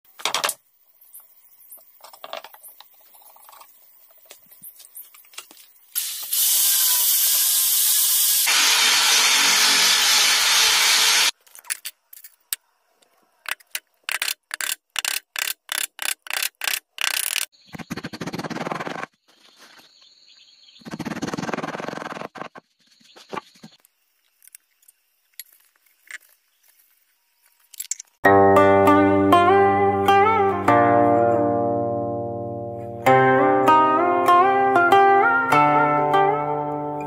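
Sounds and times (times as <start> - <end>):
drill hole saw grinding into wood: 8.3 - 11.3.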